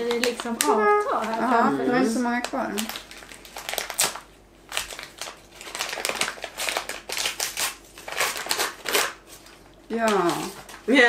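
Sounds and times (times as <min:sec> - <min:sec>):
wrapping paper tearing and crinkling: 0:00.0 - 0:10.9.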